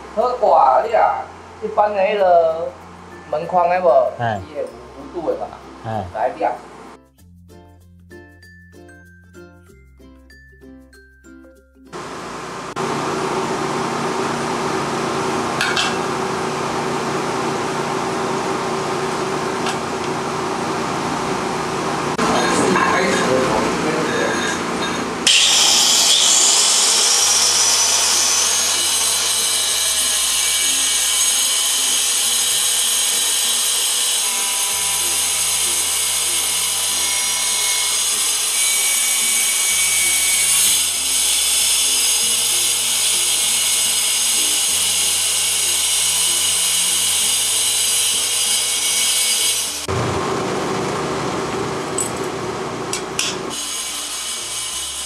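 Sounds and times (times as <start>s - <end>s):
tile cutter whining and grinding: 14.9s - 50.2s.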